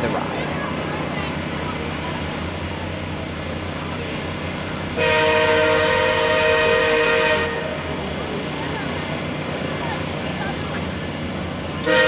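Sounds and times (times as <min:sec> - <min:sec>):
train rumbling: 0:00.0 - 0:12.0
train horn blast: 0:05.0 - 0:07.8.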